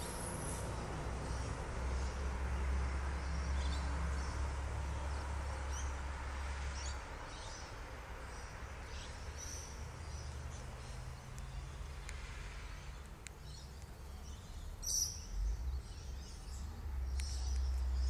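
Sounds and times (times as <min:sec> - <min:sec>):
bird chirps: 0:06.7 - 0:12.2, 0:12.8 - 0:18.0.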